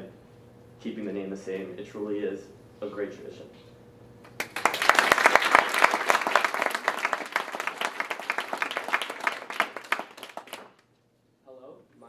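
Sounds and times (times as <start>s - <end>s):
audience applauding: 4.3s - 10.8s.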